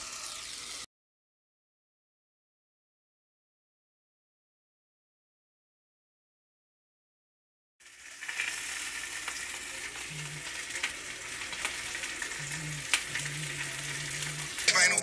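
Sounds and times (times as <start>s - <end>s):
chicken sizzling in a skillet: 0.0s - 0.9s, 7.8s - 15.0s.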